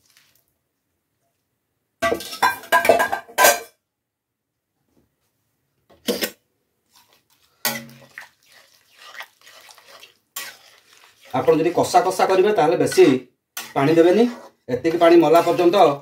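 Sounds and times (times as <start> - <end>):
metal utensil clattering on pot: 2.0 - 3.7, 14.9 - 16.0.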